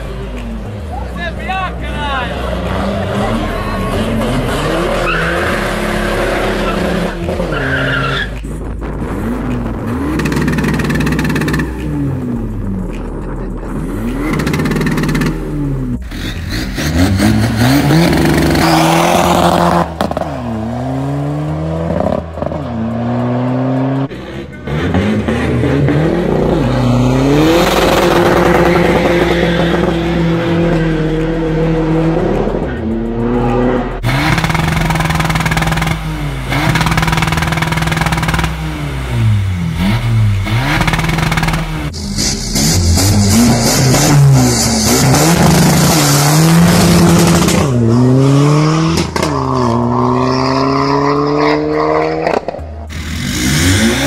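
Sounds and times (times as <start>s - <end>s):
diesel engines revving: 0.0s - 54.0s.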